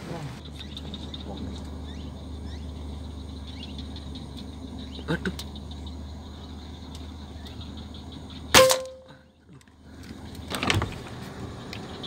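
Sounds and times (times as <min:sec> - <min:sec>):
air rifle shot: 0:08.6 - 0:09.1.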